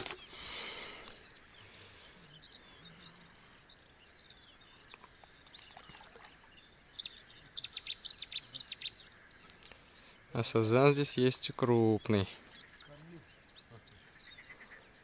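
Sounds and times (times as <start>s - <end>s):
brief rustle: 0.0s - 0.4s
birds chirping and trilling: 0.0s - 15.0s.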